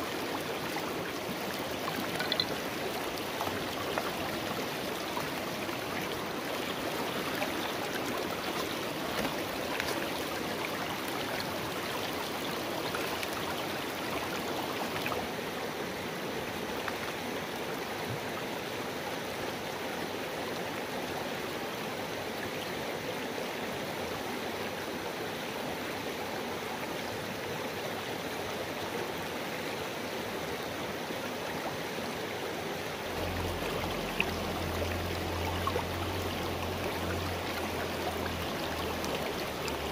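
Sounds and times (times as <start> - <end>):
water rushing over stones: 0.0 - 18.6, 32.8 - 39.9.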